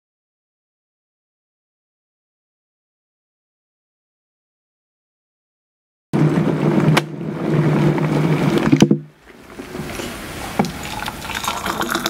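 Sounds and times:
hot water pouring into glass: 10.6 - 12.0.

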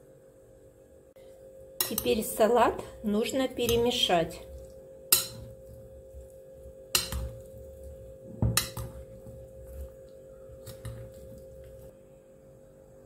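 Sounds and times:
vegetables rustling: 8.9 - 11.9.

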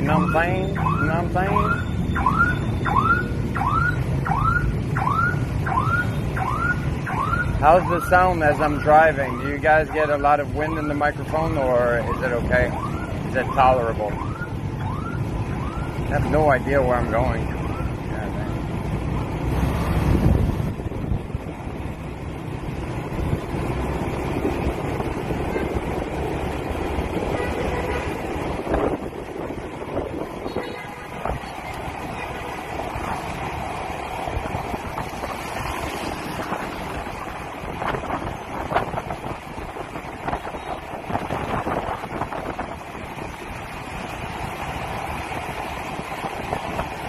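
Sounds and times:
street traffic: 0.0 - 47.0
wind noise on microphone: 19.5 - 21.7, 22.9 - 33.2, 34.2 - 47.0.

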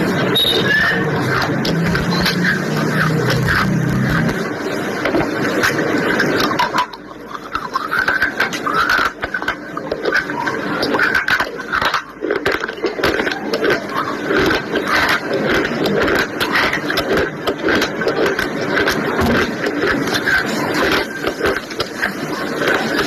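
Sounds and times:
person chewing crunchy food: 1.1 - 4.5, 9.9 - 23.0.

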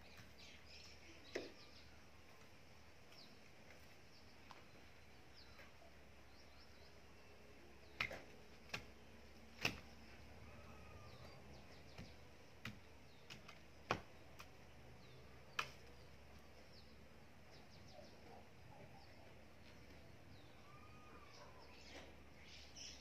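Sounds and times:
hoe chopping into soil: 7.9 - 10.2, 11.2 - 14.5.

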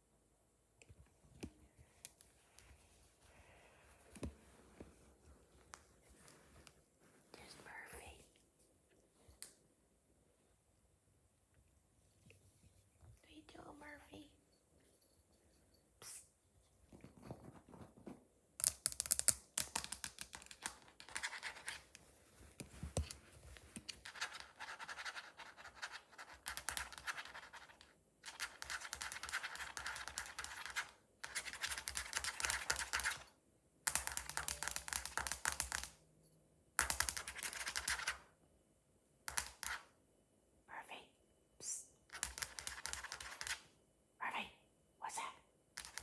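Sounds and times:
cat claws scratching floor: 16.8 - 33.3, 33.9 - 36.0, 36.8 - 38.3, 39.3 - 39.9, 42.1 - 43.7, 45.8 - 46.0.

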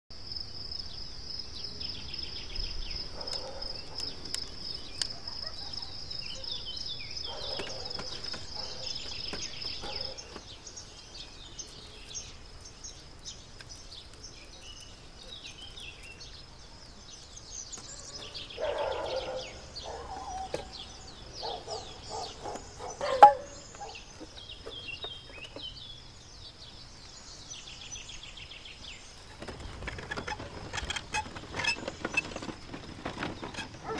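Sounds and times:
small birds chirping: 0.4 - 33.9.

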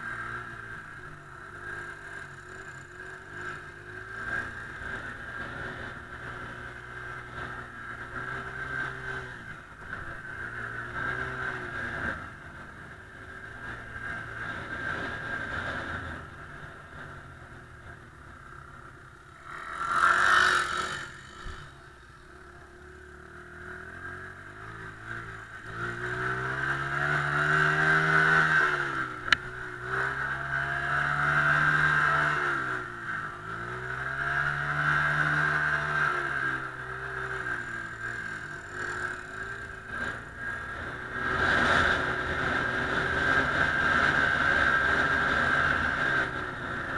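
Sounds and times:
dirt bike engine revving: 19.3 - 22.0, 23.2 - 46.9.

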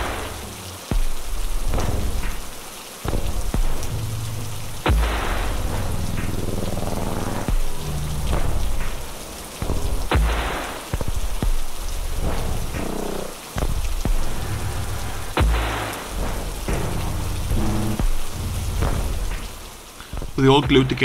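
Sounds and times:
low sustained music tones: 0.0 - 21.0
steady rain: 0.0 - 21.0
heavy booms: 15.2 - 19.6.

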